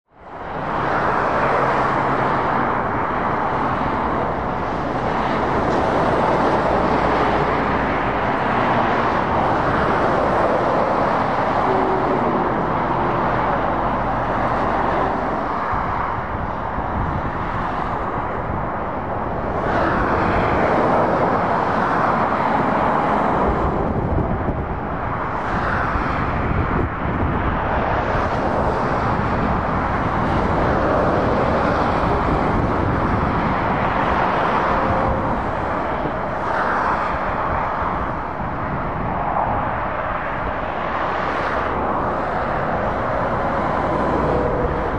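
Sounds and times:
tyre noise of passing vehicles: 0.1 - 44.9
truck engine drone: 0.3 - 25.5.

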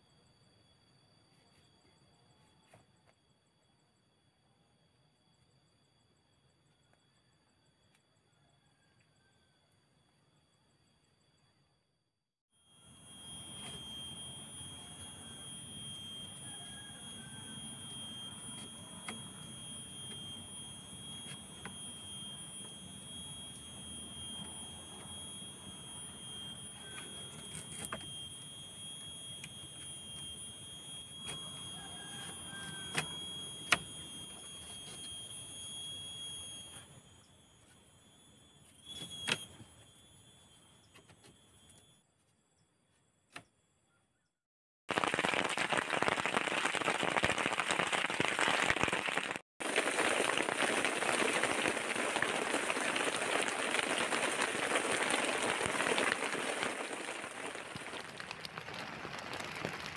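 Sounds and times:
high-pitched insect drone: 12.6 - 42.1.

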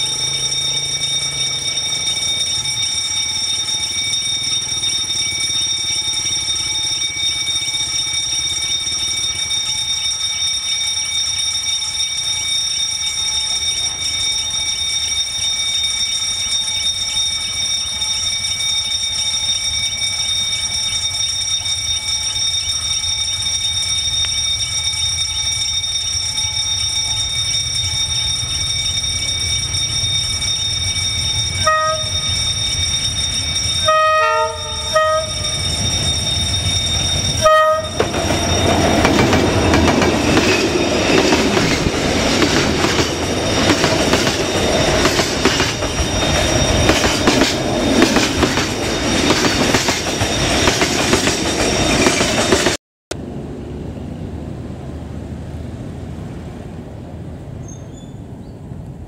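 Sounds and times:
level crossing warning bell: 0.0 - 52.8
locomotive horn blasts: 31.6 - 32.3, 33.8 - 35.6, 37.4 - 38.1
train wheels clattering: 35.5 - 52.8.

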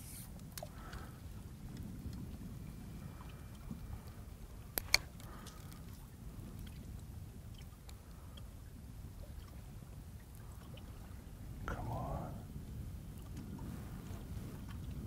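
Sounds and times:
water lapping against boat hull: 0.0 - 15.0
faint ticks: 0.3 - 1.1, 3.0 - 8.5
steady low rumble: 0.3 - 15.0.

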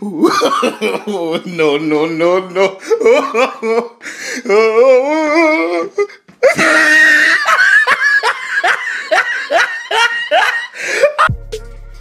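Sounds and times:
person laughing loudly: 0.0 - 11.3.

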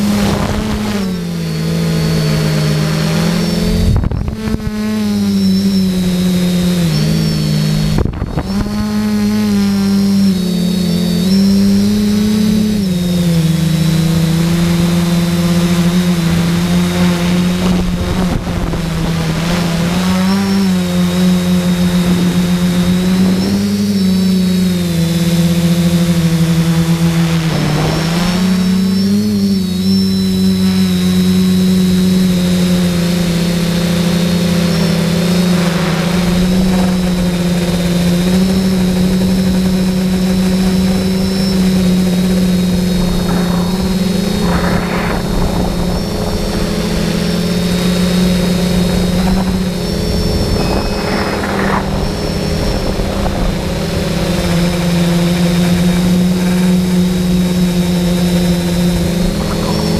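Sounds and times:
quadcopter motors buzzing: 0.0 - 59.9
thin high whine: 0.0 - 59.9.

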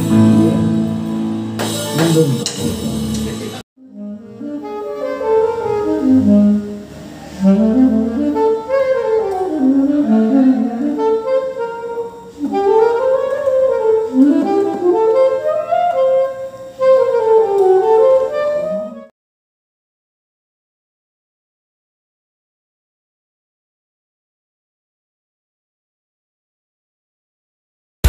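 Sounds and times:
saxophone melody: 0.0 - 2.6, 3.8 - 19.1.

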